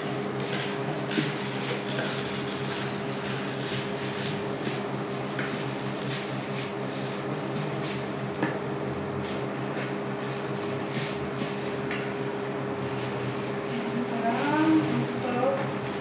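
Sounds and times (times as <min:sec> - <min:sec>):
induction cooktop hum: 0:00.0 - 0:16.0
spatula scraping rice in wok: 0:00.3 - 0:08.2, 0:09.2 - 0:15.2.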